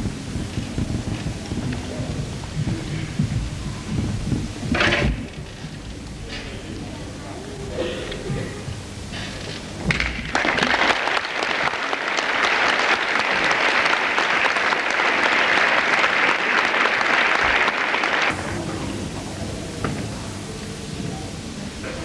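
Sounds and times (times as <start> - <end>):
audience applauding: 10.2 - 18.4.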